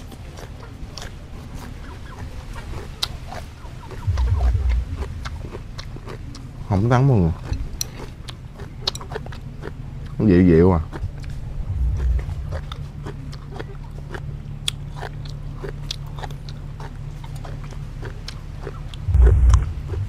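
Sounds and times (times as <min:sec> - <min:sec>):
chewing food with mouth clicks: 0:00.0 - 0:19.2
dull low thump: 0:04.0 - 0:05.9, 0:11.0 - 0:13.1, 0:19.1 - 0:20.0.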